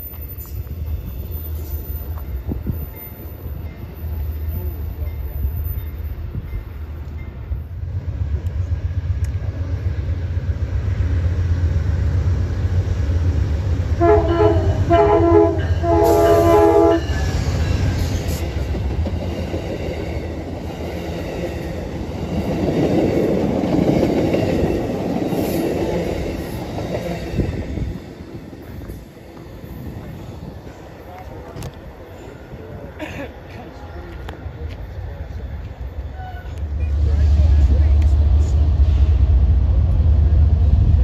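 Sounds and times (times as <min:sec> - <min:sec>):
diesel locomotive engine rumble: 0:00.0 - 0:41.0
train cars rumbling on rails: 0:00.0 - 0:41.0
train horn blasts: 0:14.0 - 0:17.2.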